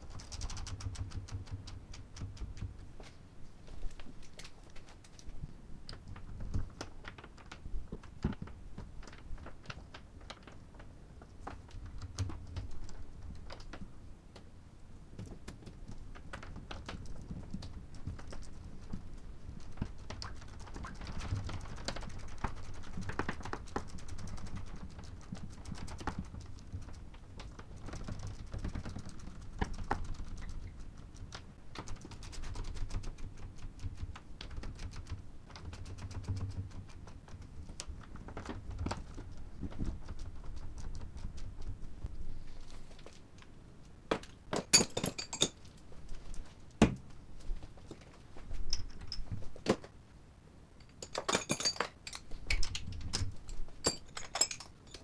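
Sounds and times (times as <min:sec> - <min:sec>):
small clicks and taps: 0:00.0 - 0:03.2.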